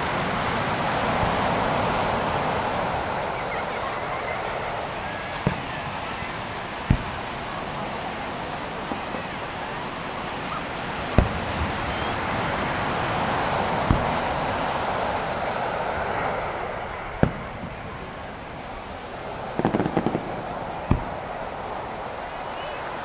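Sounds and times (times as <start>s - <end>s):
surf on beach: 0.0s - 23.0s
distant firework booms: 5.0s - 9.4s, 11.0s - 21.8s.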